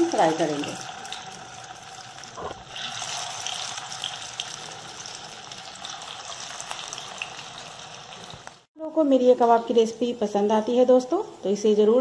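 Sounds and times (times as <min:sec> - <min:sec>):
patties sizzling in hot oil: 0:00.0 - 0:08.7.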